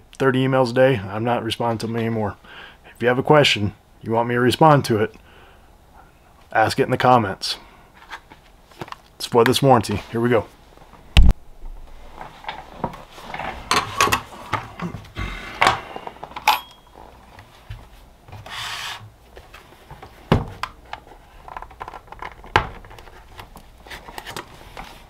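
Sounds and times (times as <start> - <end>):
scraping and rubbing plastic: 20.8 - 25.0.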